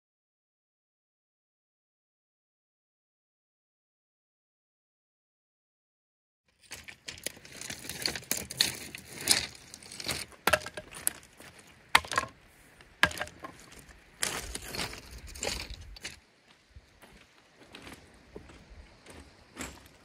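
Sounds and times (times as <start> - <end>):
pebbles crunching and clattering: 6.6 - 12.4, 13.0 - 16.2
sharp clacks of stones: 6.7 - 11.3, 12.0 - 12.4, 13.0 - 16.2.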